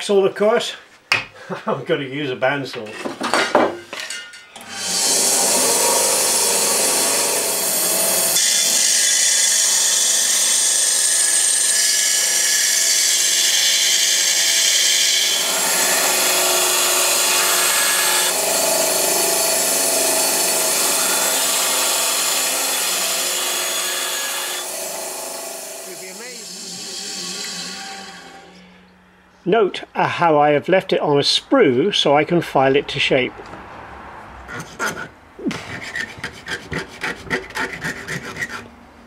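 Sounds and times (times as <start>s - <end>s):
bandsaw cutting metal sheet: 4.6s - 28.8s, 34.5s - 38.7s.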